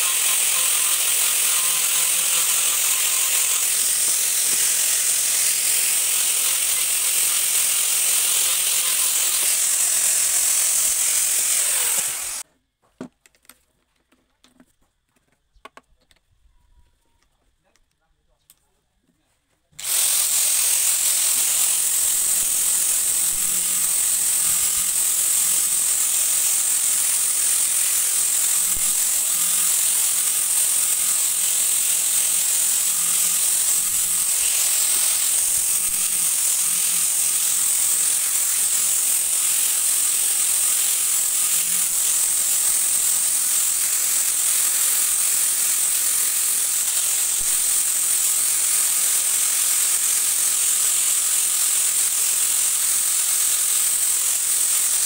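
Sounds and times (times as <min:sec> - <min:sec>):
angle grinder sanding wood: 0:00.0 - 0:12.5, 0:19.8 - 0:55.0.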